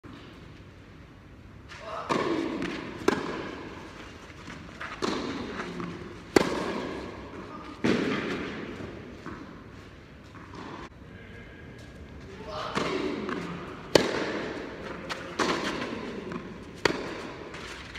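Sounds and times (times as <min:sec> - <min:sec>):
racquets striking tennis ball: 0:02.0 - 0:10.9, 0:12.6 - 0:17.9.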